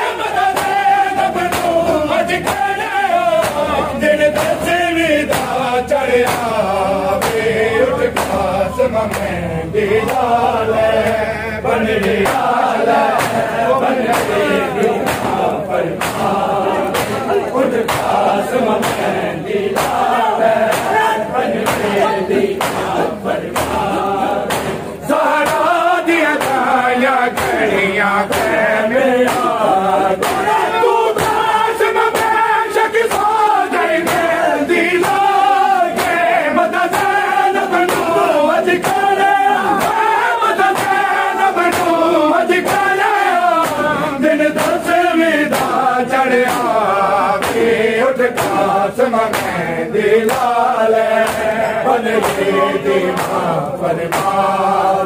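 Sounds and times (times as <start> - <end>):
men chanting in unison: 0.0 - 55.0
hands slapping chests: 13.1 - 18.2, 18.8 - 20.1, 20.7 - 26.7, 30.2 - 30.6, 43.6 - 43.9, 44.6 - 44.9, 45.5 - 45.8, 46.4 - 46.8, 47.4 - 47.7, 48.4 - 48.7, 49.3 - 49.6, 50.3 - 50.6, 51.2 - 51.6, 52.2 - 52.5, 53.1 - 54.4.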